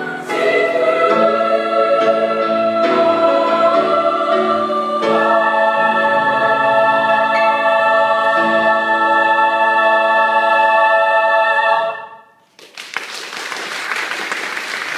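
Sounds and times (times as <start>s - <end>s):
choir holding chord: 0.0s - 12.4s
audience applause: 12.5s - 14.9s.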